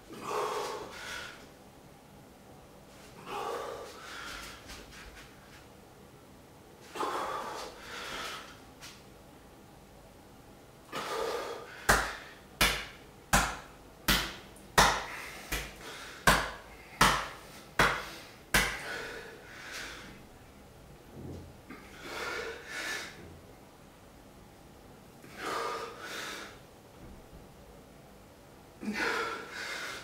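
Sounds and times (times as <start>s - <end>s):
heavy breathing: 0.1s - 1.5s, 3.0s - 5.3s, 6.8s - 8.6s, 10.9s - 12.4s, 17.8s - 20.2s, 21.7s - 23.3s, 25.2s - 26.6s, 28.8s - 30.0s
fists slapping bare chest: 11.9s - 18.9s.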